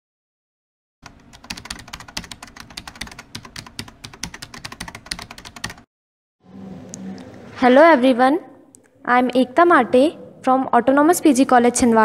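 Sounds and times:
computer keyboard typing: 1.0 - 5.9.

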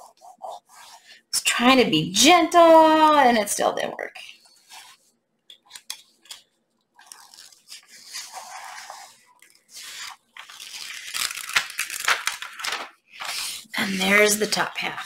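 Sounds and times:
release sheet peeling and crinkling: 5.7 - 13.4.

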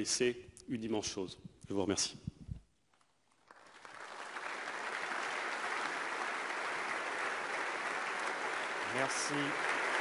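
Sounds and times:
crowd applauding: 3.4 - 10.0.

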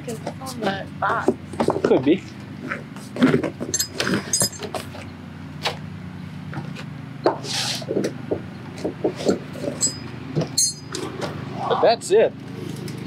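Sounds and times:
steady low hum: 0.0 - 13.0
metal hook clinks: 3.7 - 4.7, 9.8 - 11.0.

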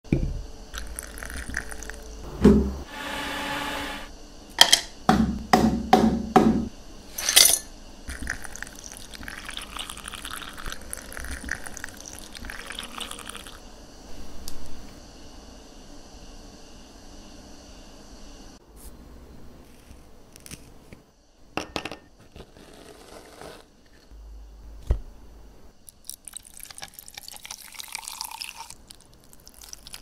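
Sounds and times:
sparkling water pouring and fizzing: 0.8 - 2.2, 8.1 - 13.6, 25.9 - 30.0
ice clattering into a glass: 26.1 - 28.8.

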